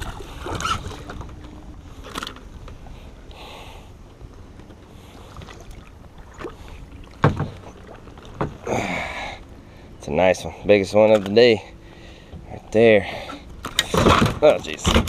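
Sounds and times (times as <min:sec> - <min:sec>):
knocks on kayak: 0:07.2 - 0:07.6.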